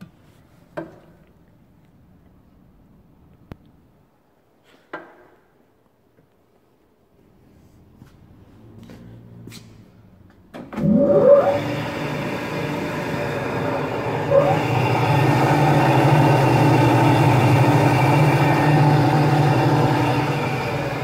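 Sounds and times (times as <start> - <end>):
electric motor whine and hum: 10.8 - 21.0.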